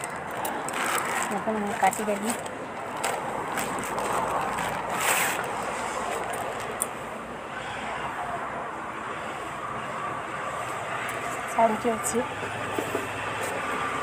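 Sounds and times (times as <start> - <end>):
plastic bag crinkling: 0.0 - 6.8
plastic ripping: 0.0 - 6.8.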